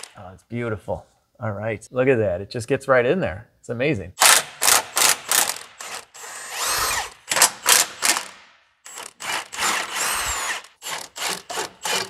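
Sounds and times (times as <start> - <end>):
ratcheting bursts: 4.2 - 12.0
power ratchet motor whine: 5.3 - 7.2, 8.9 - 12.0.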